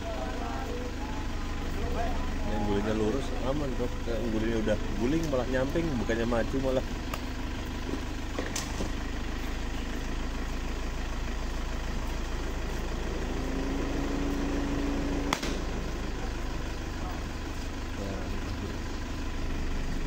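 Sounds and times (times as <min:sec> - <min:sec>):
vehicle engine idling: 0:00.0 - 0:20.0
sharp click: 0:15.3 - 0:15.7.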